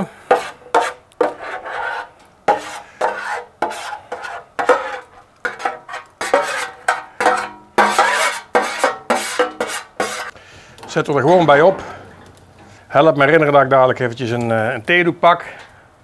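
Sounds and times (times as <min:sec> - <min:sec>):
utensil scraping and knocking cookware: 0:00.3 - 0:11.0.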